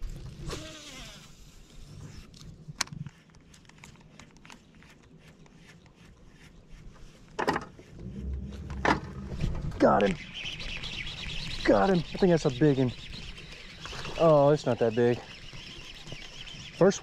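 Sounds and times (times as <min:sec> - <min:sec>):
fishing reel spool whirring: 0:00.3 - 0:02.0.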